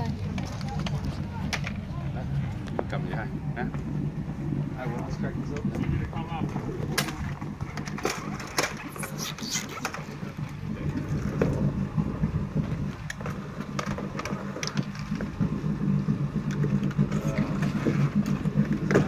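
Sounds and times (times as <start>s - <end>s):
engine idling: 0.0s - 19.0s
plastic hull clicks and knocks: 9.8s - 19.0s.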